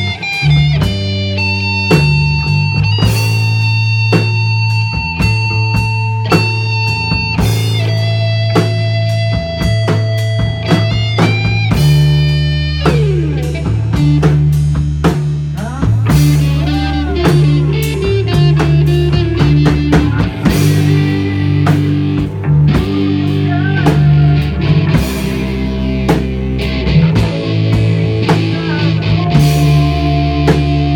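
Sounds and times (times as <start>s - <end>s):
electric bass: 0.0s - 30.9s
electric guitar: 0.0s - 30.9s
drum hits: 0.7s - 30.9s.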